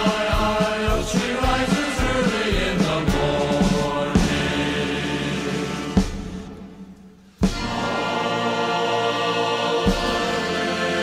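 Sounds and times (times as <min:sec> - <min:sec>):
choir singing held chords: 0:00.0 - 0:11.0.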